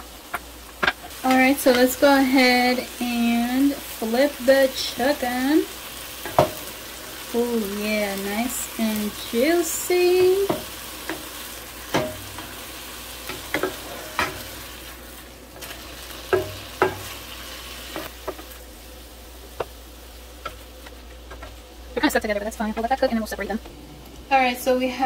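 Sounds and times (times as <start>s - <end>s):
chicken sizzling in a pan: 0.0s - 25.0s
spatula tapping and scraping pan: 6.2s - 6.7s, 10.1s - 12.6s, 13.2s - 14.5s, 16.3s - 17.2s.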